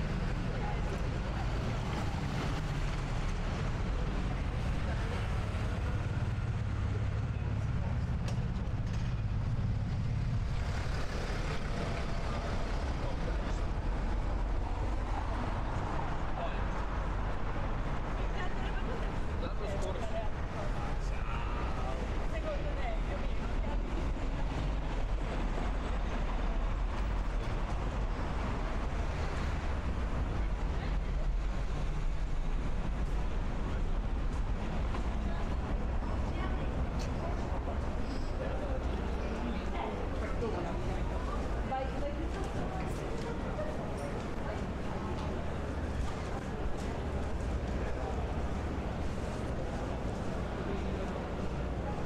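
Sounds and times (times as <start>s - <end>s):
indistinct voices of passers-by: 0.0s - 52.0s
traffic rumble: 0.0s - 52.0s.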